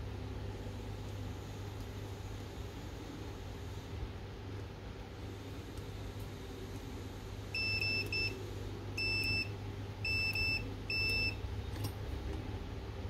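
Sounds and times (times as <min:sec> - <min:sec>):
multimeter beeping: 0:07.6 - 0:08.4, 0:09.0 - 0:11.4.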